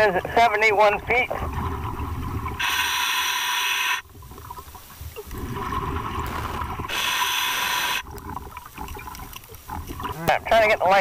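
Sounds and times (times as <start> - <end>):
exhaled air bubbling: 0.0 - 11.0
regulator air hiss: 2.6 - 4.0, 6.9 - 8.0.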